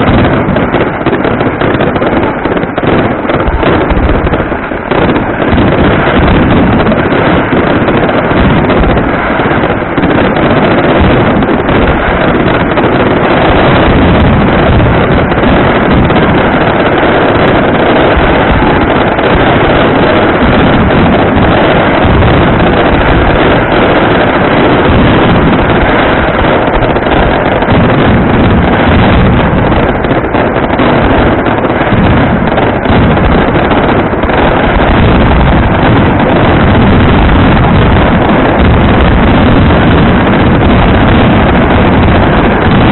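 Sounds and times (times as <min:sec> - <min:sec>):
fireworks rumbling continuously: 0:00.0 - 0:42.9.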